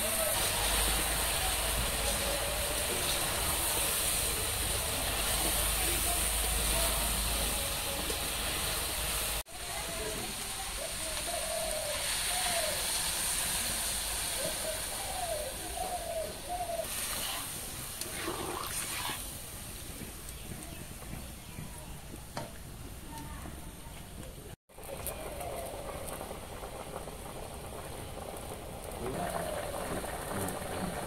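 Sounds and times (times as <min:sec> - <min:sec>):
curry hissing in a wok: 0:00.0 - 0:20.6, 0:24.7 - 0:31.0
water splashing into hot pan: 0:16.9 - 0:19.4.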